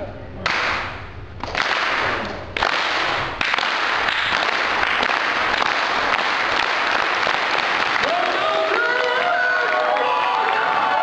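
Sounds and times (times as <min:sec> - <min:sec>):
crowd applauding and cheering: 0:02.6 - 0:11.0.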